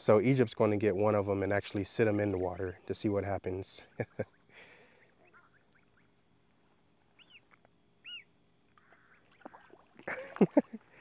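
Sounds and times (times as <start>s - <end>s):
goslings peeping: 7.2s - 9.4s.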